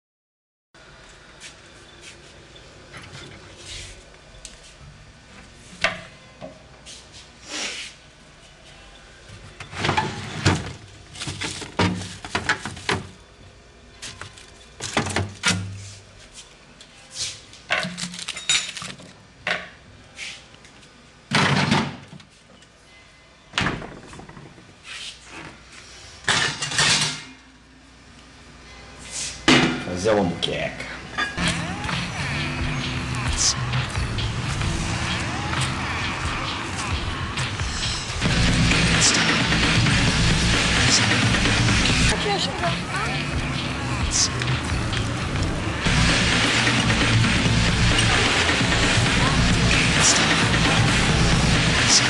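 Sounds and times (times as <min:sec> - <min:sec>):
kitchen knocks and clatters: 0:26.3 - 0:27.3.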